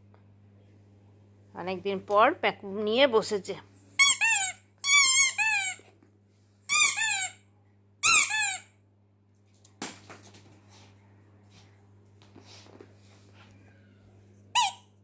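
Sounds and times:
rubber squeaky toy squeaking: 0:04.0 - 0:05.8, 0:06.7 - 0:07.4, 0:08.0 - 0:08.7, 0:14.6 - 0:14.9.

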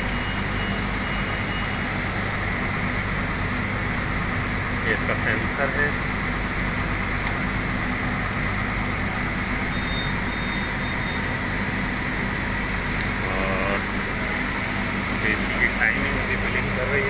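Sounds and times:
air conditioner fan humming: 0:01.4 - 0:17.0.

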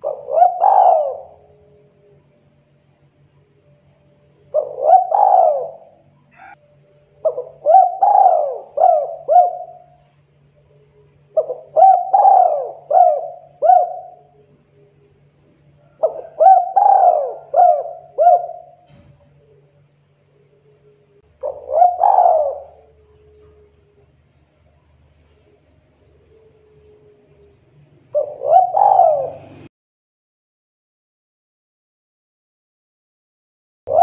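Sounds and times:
dove cooing: 0:00.0 - 0:02.2, 0:04.4 - 0:10.1, 0:10.9 - 0:19.8, 0:20.5 - 0:24.1, 0:26.1 - 0:29.7.

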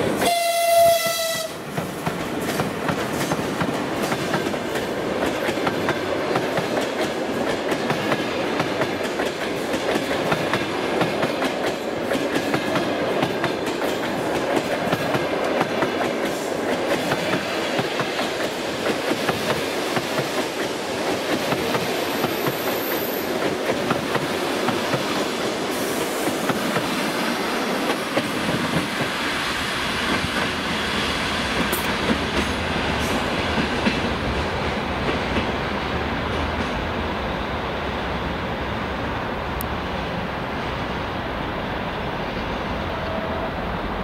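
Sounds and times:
low train rumble: 0:00.0 - 0:44.0.

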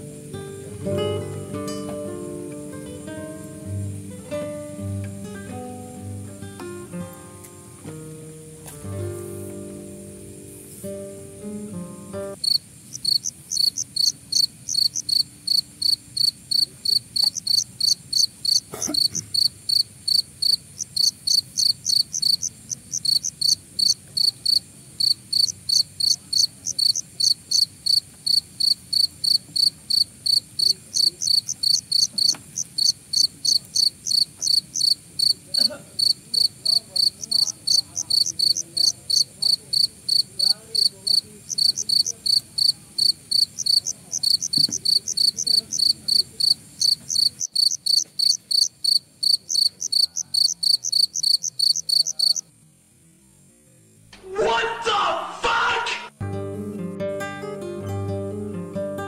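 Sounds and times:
cricket chirping: 0:08.2 - 0:53.5.

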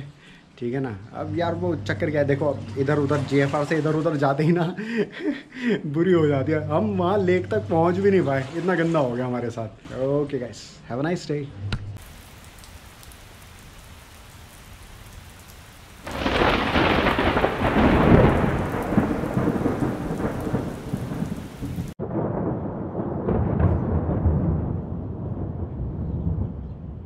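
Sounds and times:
faint rain hiss: 0:00.0 - 0:10.9, 0:12.0 - 0:22.0
thunder rumbling: 0:01.2 - 0:03.8, 0:12.0 - 0:27.0.

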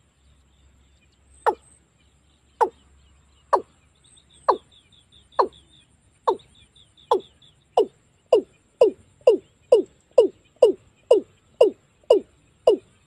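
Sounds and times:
watercock calling: 0:05.4 - 0:05.6.

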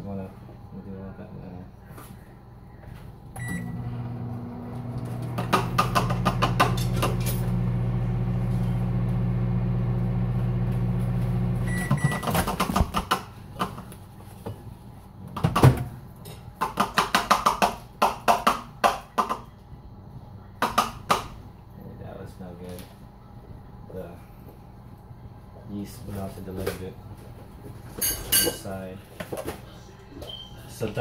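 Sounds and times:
microwave humming: 0:02.4 - 0:16.6
microwave beep: 0:03.4 - 0:05.2, 0:11.5 - 0:12.4.

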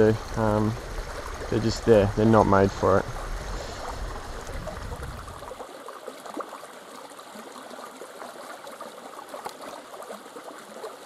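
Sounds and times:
low rumble: 0:00.0 - 0:05.5
river water over rocks: 0:00.0 - 0:11.0.

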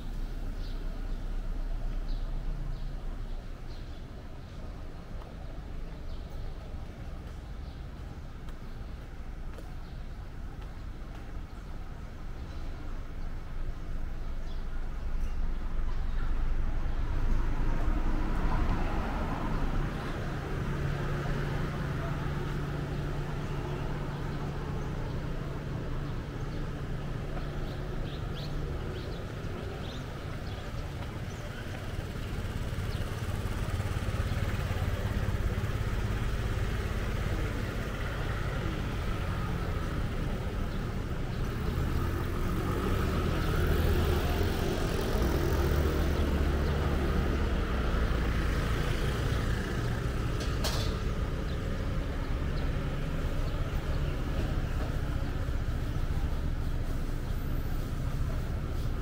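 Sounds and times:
traffic passing on a road: 0:00.0 - 0:59.0.

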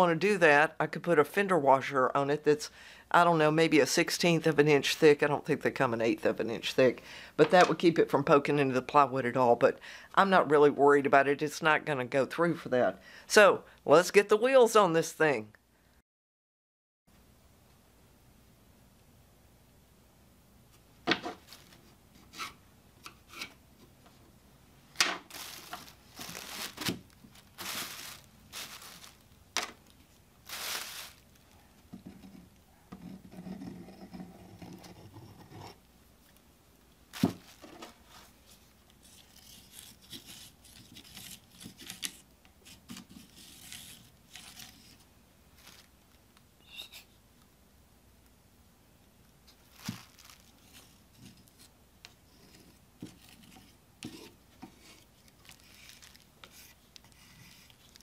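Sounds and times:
crumpled paper rustling: 0:21.3 - 0:22.0, 0:25.2 - 0:31.6, 0:37.1 - 0:42.2, 0:43.2 - 0:46.1, 0:49.5 - 0:51.7, 0:54.8 - 0:58.0
glue spread with stick scraping: 0:38.9 - 0:45.1, 0:52.4 - 0:58.0.

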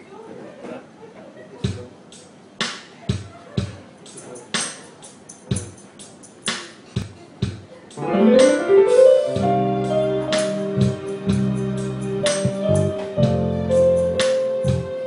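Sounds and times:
drum hits: 0:06.5 - 0:14.9
electric keyboard chords: 0:07.9 - 0:15.0.

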